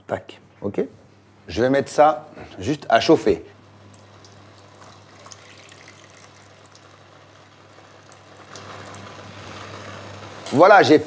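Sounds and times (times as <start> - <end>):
sauce simmering with crackles: 3.6 - 10.6
liquid pouring into a pan: 3.9 - 10.3.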